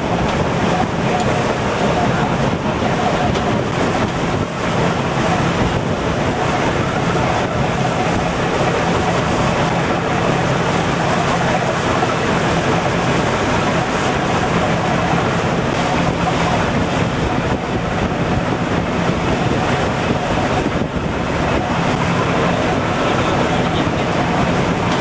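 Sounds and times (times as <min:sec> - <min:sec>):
boat engine humming: 0:00.0 - 0:25.0
rough sea wash: 0:00.0 - 0:25.0
wind buffeting microphone: 0:00.0 - 0:25.0.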